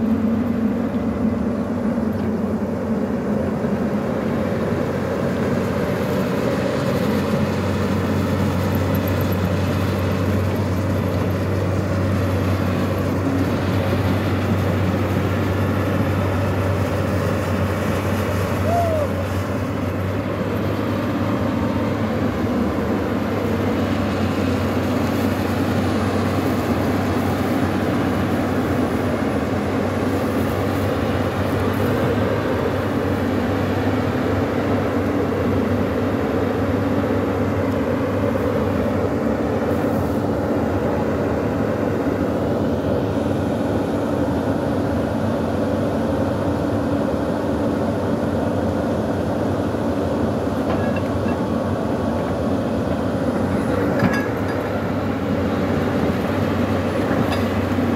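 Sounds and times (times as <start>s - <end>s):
excavator diesel engine drone: 0.0s - 57.9s.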